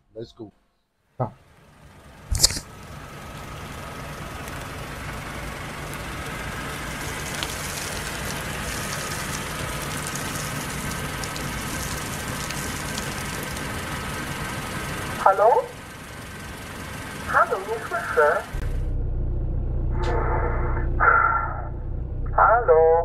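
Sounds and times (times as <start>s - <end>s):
car engine driving up: 1.4s - 23.0s
sharp click: 2.3s - 2.7s.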